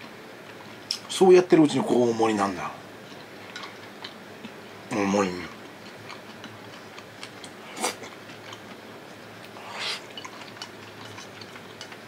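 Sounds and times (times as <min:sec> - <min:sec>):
person chewing food: 0:05.5 - 0:12.0.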